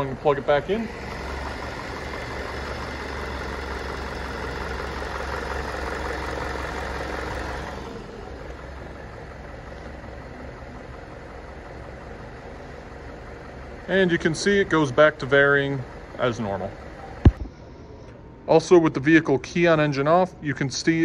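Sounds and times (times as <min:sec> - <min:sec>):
car engine idling: 0:00.0 - 0:18.5.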